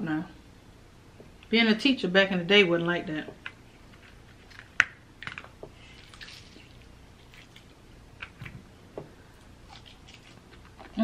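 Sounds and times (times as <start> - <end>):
wet squishing and dripping lemon: 5.7 - 8.5, 9.3 - 11.0.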